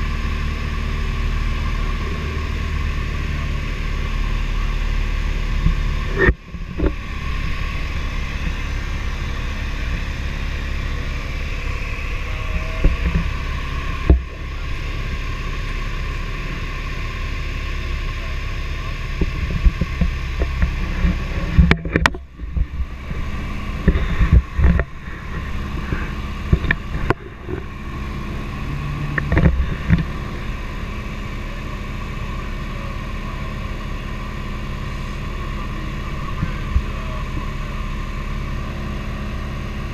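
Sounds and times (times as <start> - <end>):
light aircraft engine droning: 0.0 - 39.9
knocks and clicks: 19.2 - 23.2.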